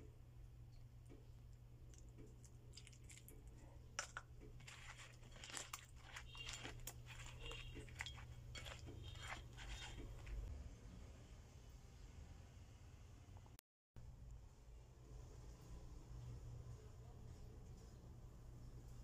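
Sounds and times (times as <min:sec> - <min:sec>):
wet eggplant crackling and squeaking: 0:04.6 - 0:10.5.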